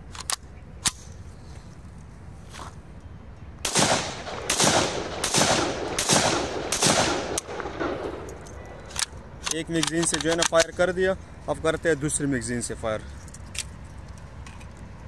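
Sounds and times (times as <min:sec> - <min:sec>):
metallic clicks of cocking handle: 0:00.0 - 0:01.2, 0:08.2 - 0:10.8, 0:13.2 - 0:14.9
gunshots with echo: 0:03.7 - 0:08.3.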